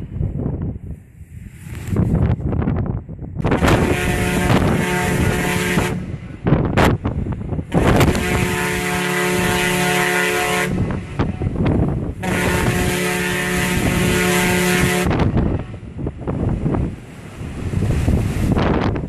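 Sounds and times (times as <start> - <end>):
wind buffeting microphone: 0.0 - 19.0
ship's horn blasts: 3.4 - 16.9.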